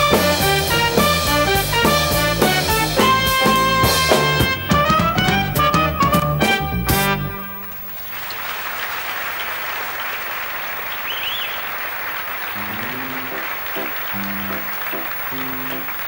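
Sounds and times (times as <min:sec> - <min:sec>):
live band playing rhythmic chords: 0:00.0 - 0:08.1, 0:12.3 - 0:16.0
audience applauding: 0:07.6 - 0:16.0
whistle: 0:10.9 - 0:11.8.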